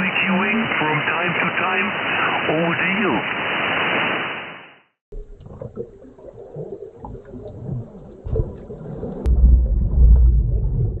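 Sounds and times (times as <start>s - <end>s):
muffled underwater bubbling: 5.2s - 11.0s
deep bass rumble: 9.2s - 11.0s.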